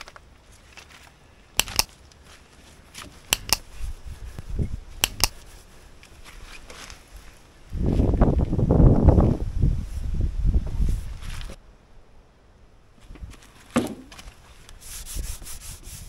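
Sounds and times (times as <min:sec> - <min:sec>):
mouse double clicks: 0:01.6 - 0:01.9, 0:03.3 - 0:03.7, 0:05.0 - 0:05.4.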